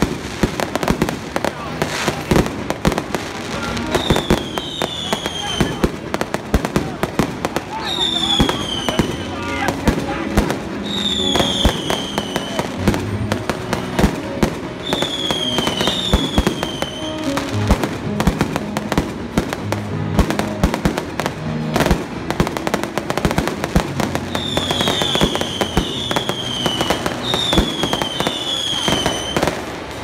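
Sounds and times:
fireworks bursting and crackling: 0.0 - 30.0
fireworks whistling falling in pitch: 3.8 - 6.0, 7.7 - 17.8, 24.0 - 29.7.

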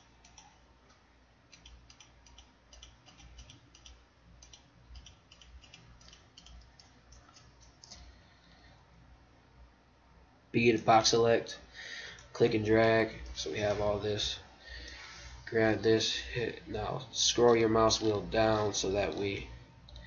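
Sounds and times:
computer mouse and keyboard clicking: 0.0 - 8.1, 17.4 - 19.3.

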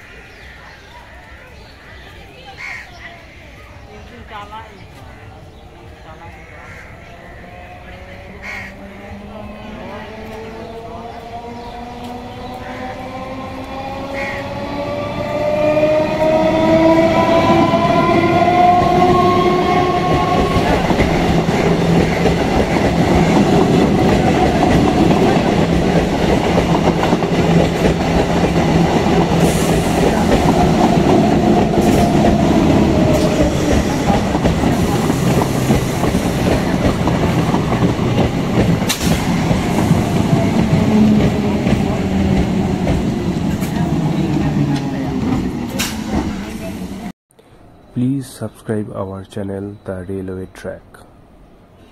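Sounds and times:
train wheels clacking on rails: 9.9 - 47.1.

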